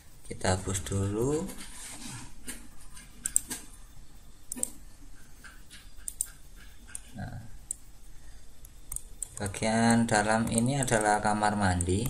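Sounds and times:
computer mouse clicks: 2.4s - 3.7s, 4.5s - 7.9s, 8.6s - 12.0s
keyboard clicks: 2.5s - 3.7s, 4.5s - 7.8s, 8.6s - 12.0s.

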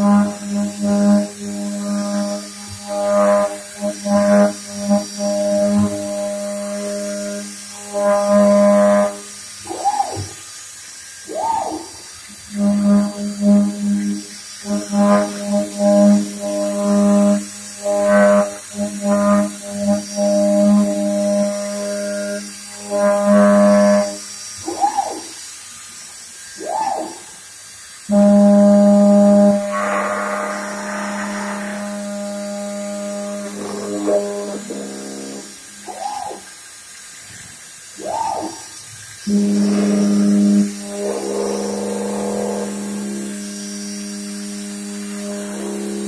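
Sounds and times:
milling machine cutting metal: 0.0s - 37.2s, 37.8s - 46.0s
hiss: 0.0s - 46.0s
machine whines: 0.0s - 46.0s
milling machine cutting hum: 26.4s - 36.5s.

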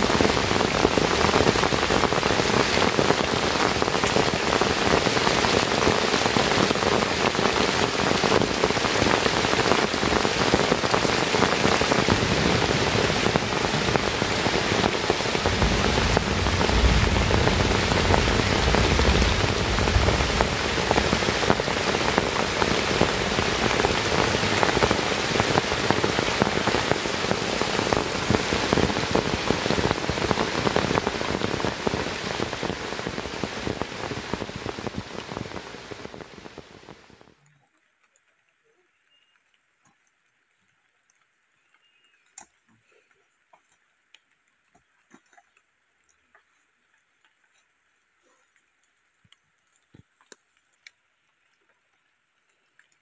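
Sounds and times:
heavy rain on a shelter: 0.0s - 53.0s
low rumble: 15.4s - 22.2s.

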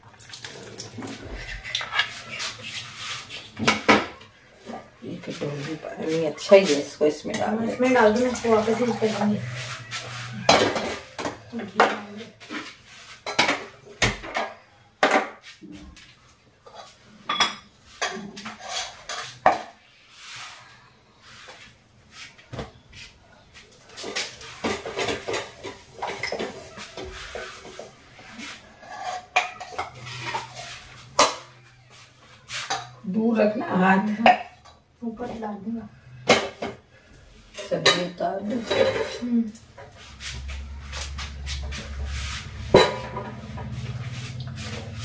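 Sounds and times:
kitchen utensils clinking: 3.4s - 12.4s, 13.2s - 15.4s, 16.7s - 19.8s, 24.0s - 31.6s, 37.5s - 45.0s.

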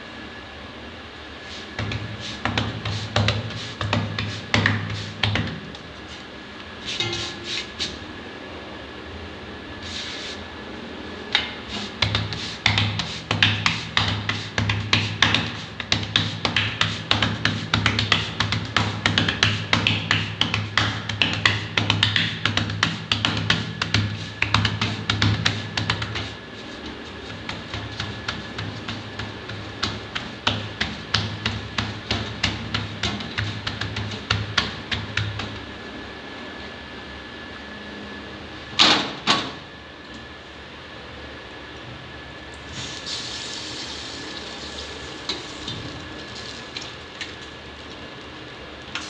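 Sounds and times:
hands patting dough: 1.5s - 8.0s, 11.4s - 35.8s
water sizzling on a hot griddle: 42.8s - 46.9s.

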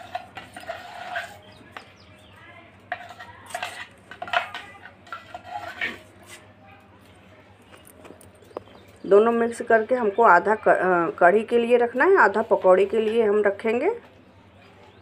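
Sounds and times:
whisk scraping metal bowl: 0.0s - 2.0s, 2.8s - 6.5s.

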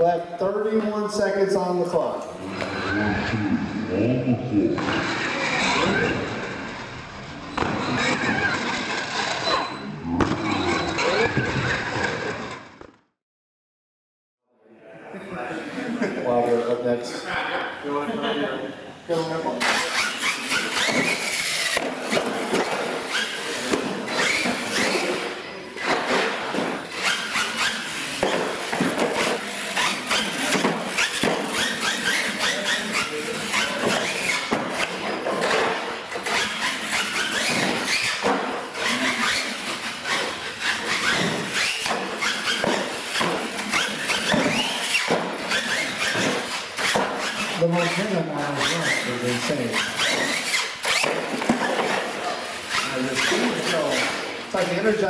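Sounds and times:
toy truck motor whining: 4.8s - 12.9s, 19.6s - 54.8s
tyres squealing on concrete: 7.4s - 12.6s, 19.1s - 55.0s.

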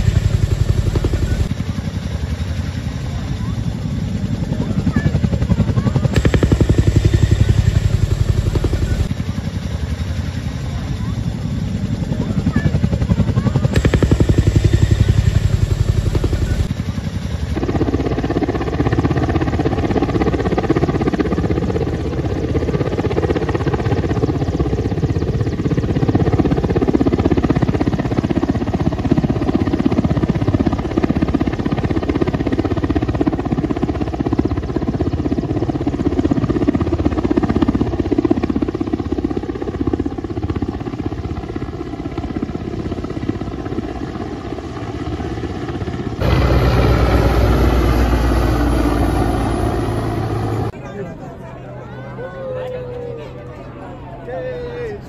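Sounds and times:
helicopter rotors chopping: 0.0s - 50.8s.

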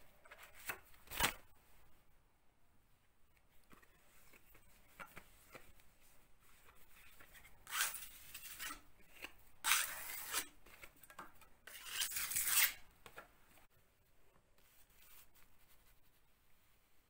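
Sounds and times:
metal knife scraping: 7.4s - 10.6s, 11.6s - 12.9s.

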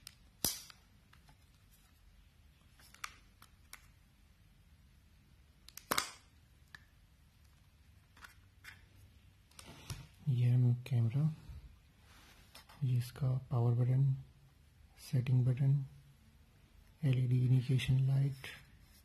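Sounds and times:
plastic housing clicks and snaps: 5.6s - 6.9s.

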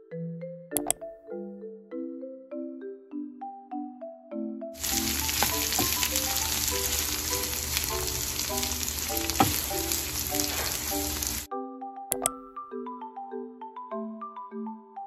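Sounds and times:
light mallet-tone background music: 0.0s - 15.0s
vegetables sizzling in butter: 4.8s - 11.5s
wooden spatula stirring in pan: 4.8s - 11.5s.

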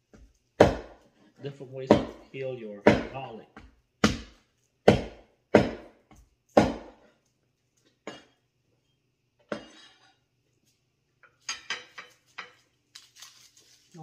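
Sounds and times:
knife chopping on wooden board: 0.1s - 1.1s, 1.9s - 2.2s, 2.8s - 7.0s.

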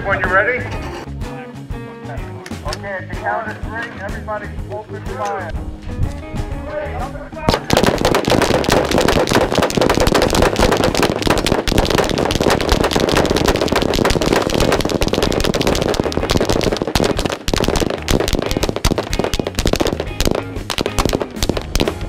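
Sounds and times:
massed gunfire: 7.5s - 22.0s.

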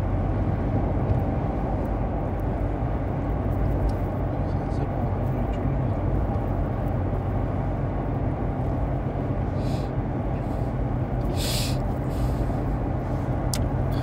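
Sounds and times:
car cabin rumble: 0.0s - 14.0s
short hissing sounds: 9.6s - 9.9s, 11.3s - 12.5s.

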